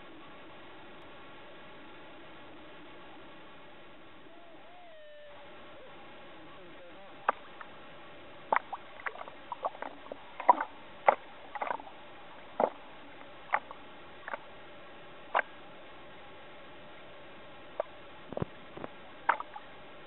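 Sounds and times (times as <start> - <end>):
small waves slapping water: 8.5 - 14.5, 17.8 - 19.7
water pops and squeaky clicks: 18.8 - 19.5.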